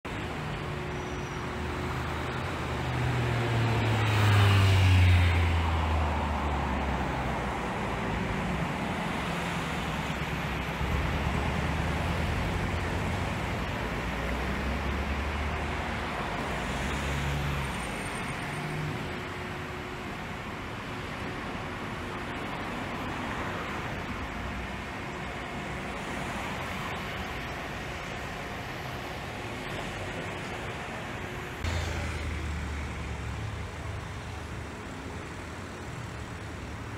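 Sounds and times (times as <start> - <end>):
slow car traffic passing: 0.1 - 36.9
car passing loudly: 3.3 - 7.4.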